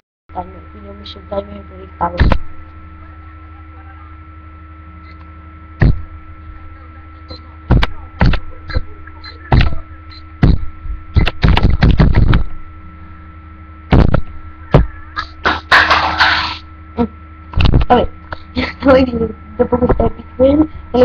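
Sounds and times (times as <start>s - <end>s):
electrical hum: 0.3s - 21.0s
loud thumps and knocks: 5.8s - 6.0s, 7.7s - 8.4s, 9.5s - 9.8s, 10.4s - 12.5s, 13.9s - 16.6s.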